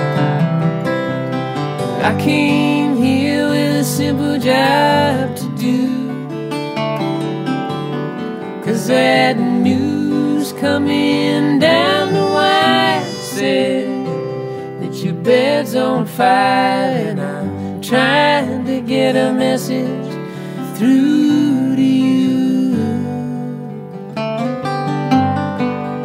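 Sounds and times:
acoustic guitar playing: 0:00.0 - 0:26.0
person singing: 0:01.9 - 0:06.5, 0:08.6 - 0:24.0.

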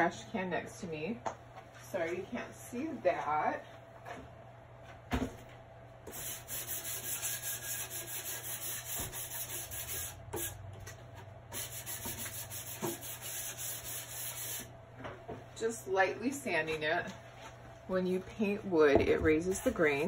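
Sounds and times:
sanding disc on painted wood: 0:06.1 - 0:10.5, 0:11.6 - 0:14.7.

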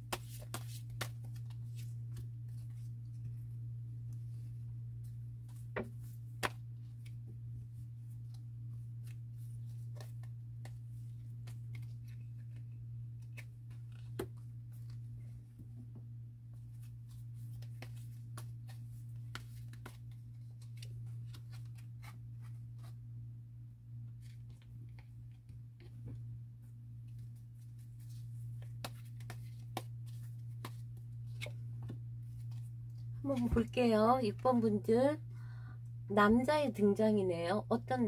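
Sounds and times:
cards tapping on cloth: 0:00.0 - 0:01.6, 0:28.6 - 0:32.6
cards shuffling and riffling: 0:00.0 - 0:03.3, 0:08.2 - 0:15.1, 0:16.6 - 0:23.0, 0:27.0 - 0:33.5
steady low hum: 0:00.0 - 0:38.0.

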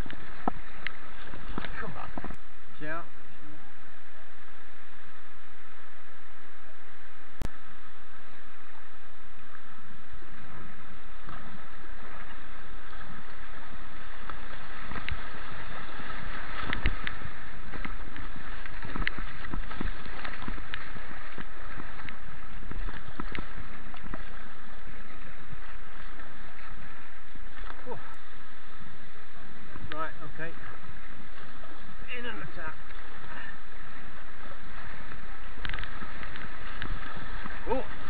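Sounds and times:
white water rushing: 0:00.0 - 0:38.0
splashes and knocks on boat: 0:00.1 - 0:02.4, 0:11.2 - 0:26.8.

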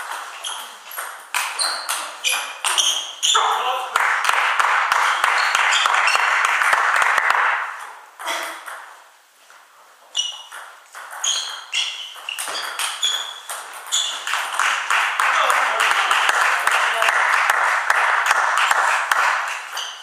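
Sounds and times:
table tennis ball hits: 0:00.0 - 0:03.5, 0:04.2 - 0:09.0, 0:10.3 - 0:20.0
clapping and cheering: 0:03.8 - 0:07.7, 0:14.3 - 0:19.7.

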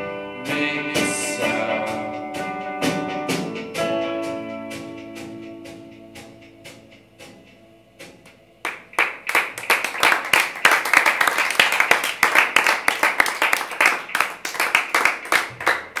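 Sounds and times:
small group clapping: 0:08.6 - 0:16.0.

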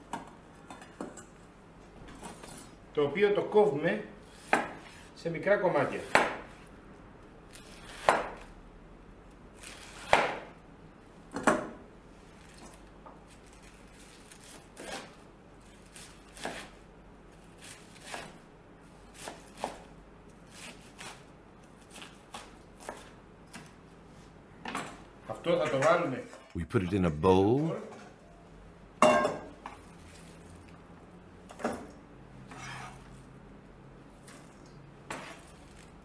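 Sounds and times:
knife shredding cabbage: 0:13.3 - 0:18.4.

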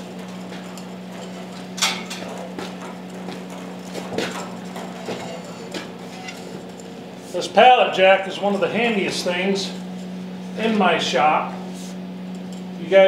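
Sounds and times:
metal clunks and knocks: 0:00.0 - 0:06.8
pallet jack rolling on concrete: 0:00.0 - 0:06.8
steady low hum: 0:00.0 - 0:13.0.

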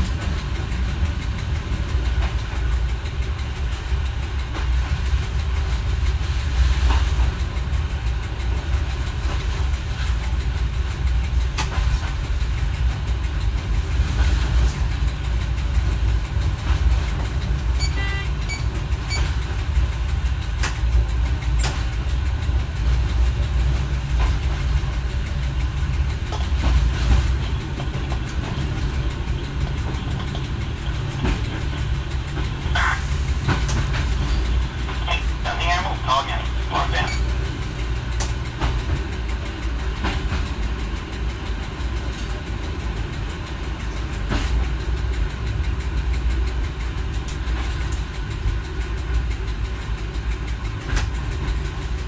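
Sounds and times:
railcar low rumble: 0:00.0 - 0:52.0
wheels clicking over rails: 0:00.0 - 0:52.0.

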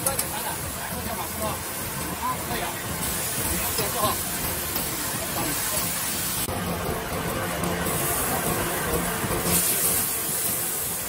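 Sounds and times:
egg and noodles sizzling on hot plate: 0:00.0 - 0:11.0.

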